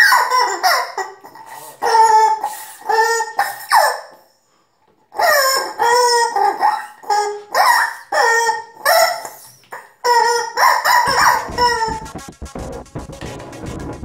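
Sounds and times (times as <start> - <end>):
rubber chicken toy squawking: 0.0 - 4.2, 5.1 - 12.1
music: 11.1 - 14.0.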